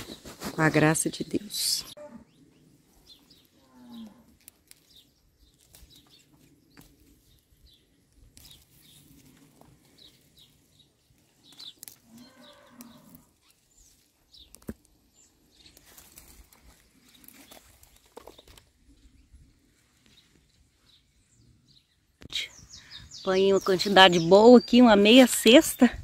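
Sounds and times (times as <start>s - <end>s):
small birds chirping: 0.0s - 26.0s
faint cow mooing: 2.0s - 2.3s, 3.6s - 4.4s, 12.0s - 13.4s.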